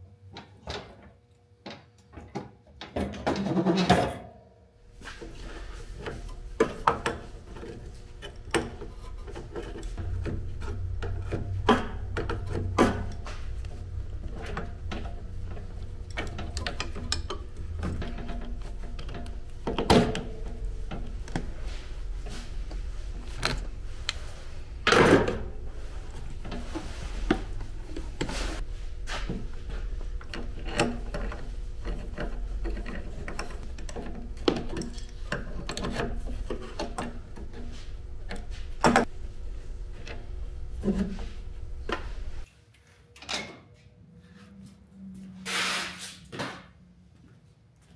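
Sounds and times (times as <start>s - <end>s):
low hum: 4.9s - 42.4s
hand tools and parts clicking: 6.0s - 24.3s, 30.1s - 39.1s.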